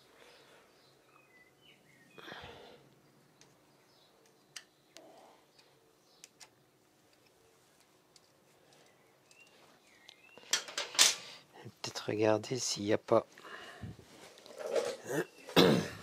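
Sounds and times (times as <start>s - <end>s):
faint bird chirps: 0.3s - 6.4s.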